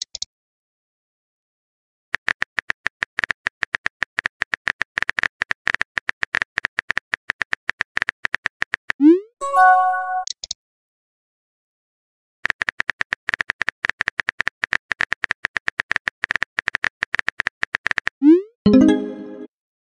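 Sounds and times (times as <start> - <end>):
chiming tone: 9.4 - 10.2, 18.7 - 19.5.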